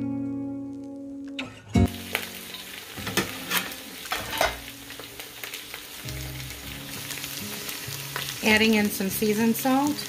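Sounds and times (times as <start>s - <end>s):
potatoes sizzling in oil: 1.8s - 10.0s.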